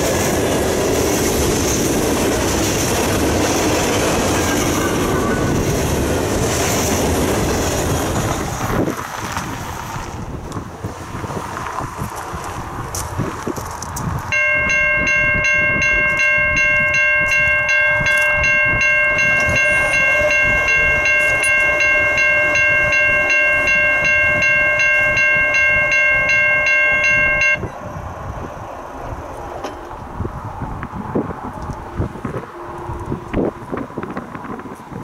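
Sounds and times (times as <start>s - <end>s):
wind rumble on microphone: 0.0s - 35.0s
crossing bell ringing: 14.3s - 27.8s.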